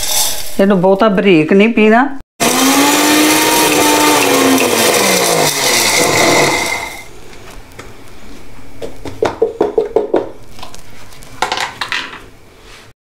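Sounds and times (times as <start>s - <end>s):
electric mixer grinder winding down: 2.4s - 7.1s.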